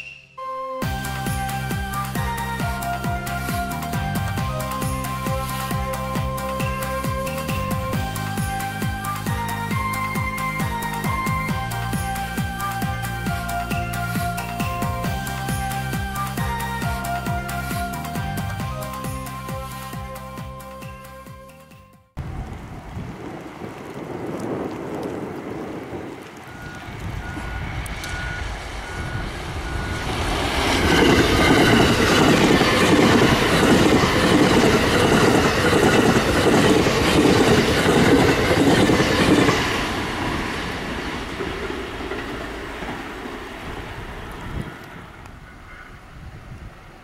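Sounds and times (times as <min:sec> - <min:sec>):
electric train passing: 0:00.0 - 0:47.0
wheels clattering over rail joints: 0:30.1 - 0:45.4.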